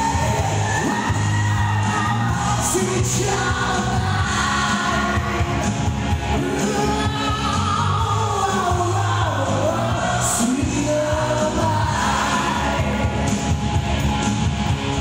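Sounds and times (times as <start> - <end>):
amplified backing music: 0.0 - 15.0
man singing into microphone: 1.9 - 5.5, 6.4 - 13.2.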